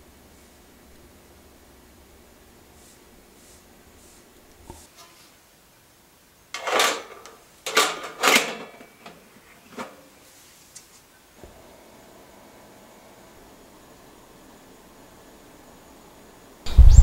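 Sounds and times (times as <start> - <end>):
metal lid scraping clatter: 6.6 - 10.0.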